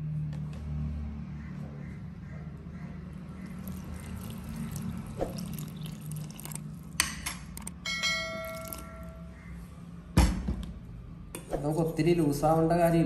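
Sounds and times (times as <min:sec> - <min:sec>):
water pouring into a bowl: 0:03.4 - 0:07.0, 0:08.4 - 0:09.1
bell-like ding: 0:07.8 - 0:09.4.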